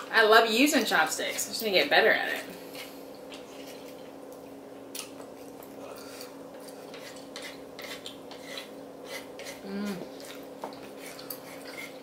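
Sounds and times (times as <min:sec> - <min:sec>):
steady low hum: 0:00.0 - 0:12.0
soft chewing: 0:02.7 - 0:12.0.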